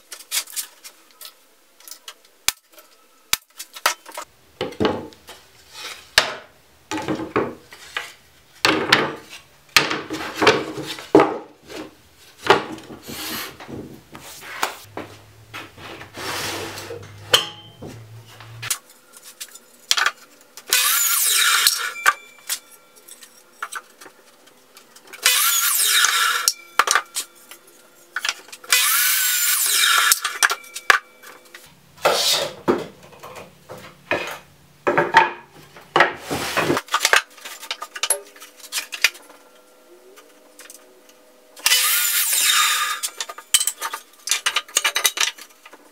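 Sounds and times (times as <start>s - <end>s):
miter saw cutting wood: 20.7s - 22.0s, 25.2s - 26.6s, 28.7s - 30.5s, 41.6s - 43.3s.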